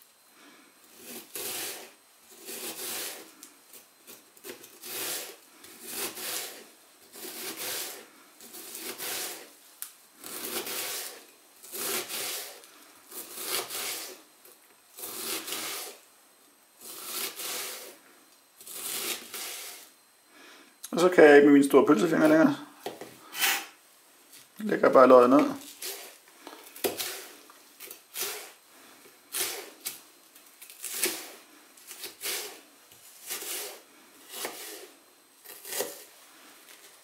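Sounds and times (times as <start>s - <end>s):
knife slicing onion on cutting board: 1.0s - 3.2s, 4.1s - 9.5s, 10.2s - 14.2s, 15.0s - 16.0s, 26.8s - 28.6s, 29.3s - 30.0s, 30.7s - 32.6s, 33.2s - 36.1s.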